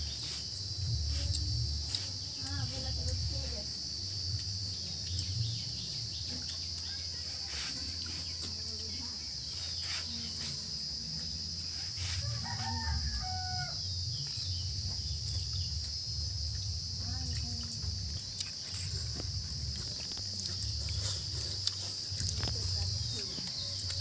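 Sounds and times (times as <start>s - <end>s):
high-pitched insect drone: 0.0s - 24.0s
rooster crowing: 11.9s - 14.3s.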